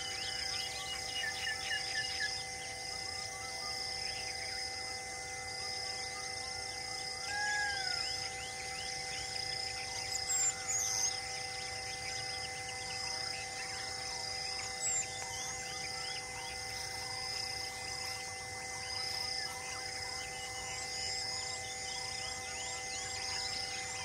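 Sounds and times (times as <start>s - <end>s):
insect chorus: 0.0s - 24.0s
loud bird calls: 7.0s - 24.0s.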